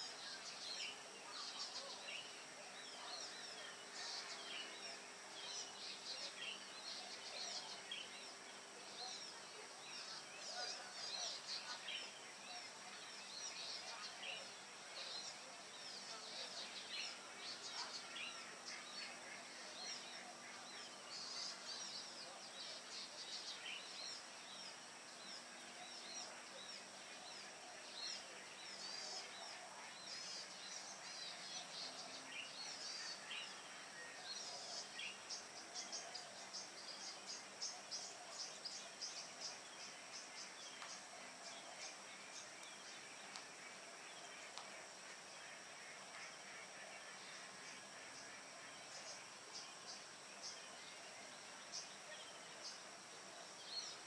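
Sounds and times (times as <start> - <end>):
faint high-pitched hum: 0.0 - 54.0
small birds chirping: 0.0 - 54.0.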